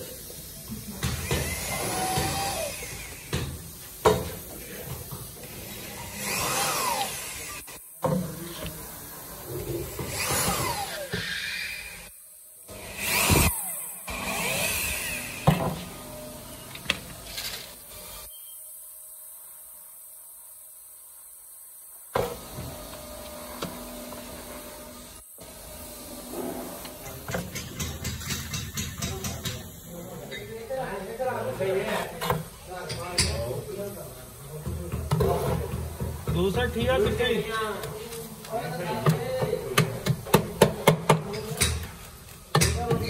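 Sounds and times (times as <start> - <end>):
steady high hiss: 0.0 - 34.7
cordless drill boring plastic: 1.2 - 3.4, 5.6 - 7.8, 10.0 - 12.1.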